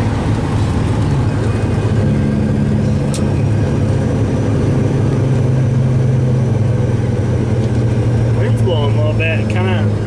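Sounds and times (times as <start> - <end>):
truck engine drone in cab: 0.0 - 10.0.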